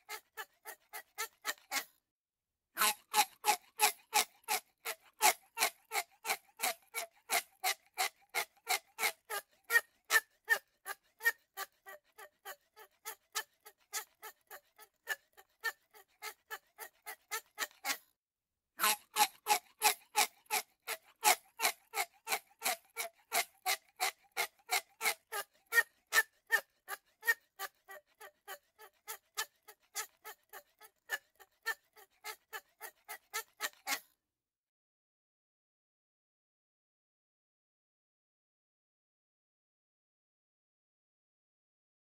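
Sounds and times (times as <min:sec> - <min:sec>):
parakeet harsh rasping squawks: 0:18.8 - 0:31.2.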